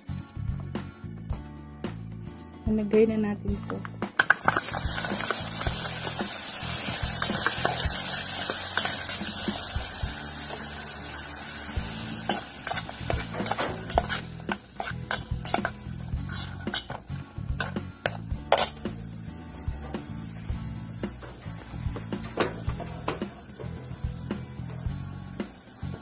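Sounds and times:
onions sizzling in hot oil: 0:04.2 - 0:26.0
metal spoon clinking against pot: 0:12.3 - 0:17.0, 0:17.6 - 0:18.8.

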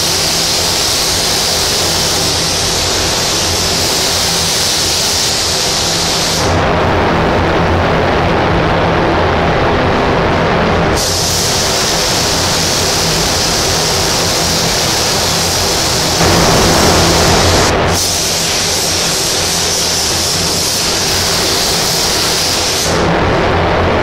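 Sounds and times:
paint spray gun hissing: 0:00.0 - 0:06.5, 0:11.0 - 0:23.0
low hum: 0:11.8 - 0:19.2.

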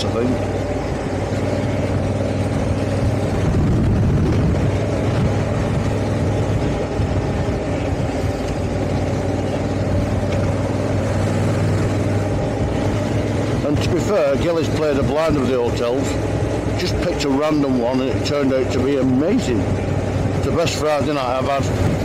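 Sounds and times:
motorcycle engine cruising: 0:00.0 - 0:22.0
wind noise: 0:00.6 - 0:13.8, 0:21.2 - 0:22.0.

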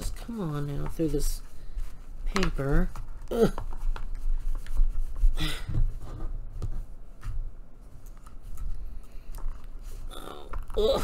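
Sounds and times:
person exhaling effortfully: 0:05.4 - 0:05.8.

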